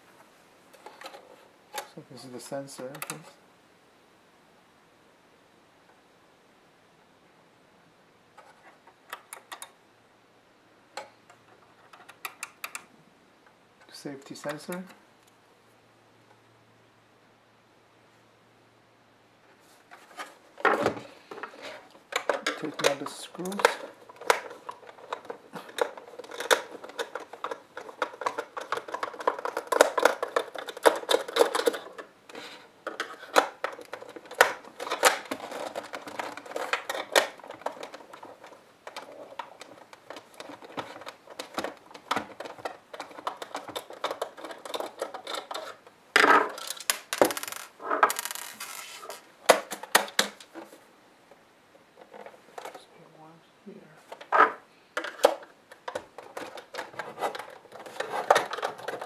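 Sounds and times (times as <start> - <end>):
plastic cover scraping: 19.6 - 50.8, 54.2 - 59.0.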